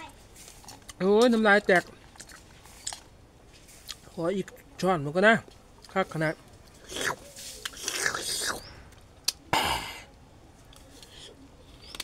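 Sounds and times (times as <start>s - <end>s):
wet slurping and lip-smacking: 6.8s - 8.7s.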